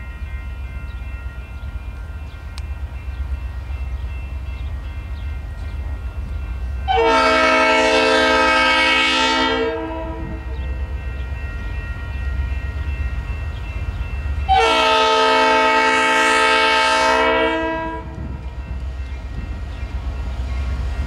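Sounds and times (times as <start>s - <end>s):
locomotive air horn blast: 6.9s - 10.6s, 14.5s - 18.2s.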